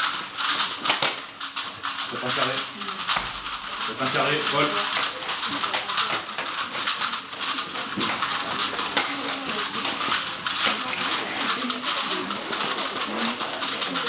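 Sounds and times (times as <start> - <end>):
plastic puzzle cubes clicking: 0.0 - 14.0.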